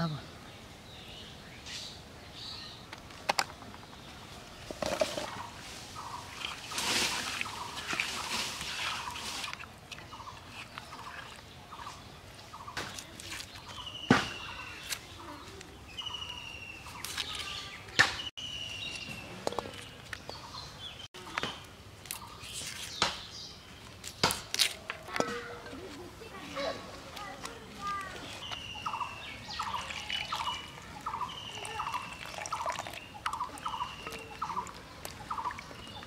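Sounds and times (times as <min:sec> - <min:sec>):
birds calling: 0:00.0 - 0:36.0.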